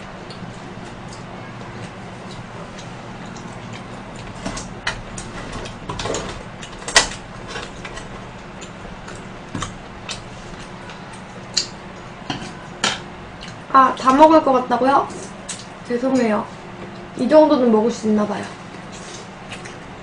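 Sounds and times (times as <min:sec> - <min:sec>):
eating noises: 0:00.0 - 0:12.2, 0:18.6 - 0:20.0
low steady hum: 0:00.0 - 0:20.0.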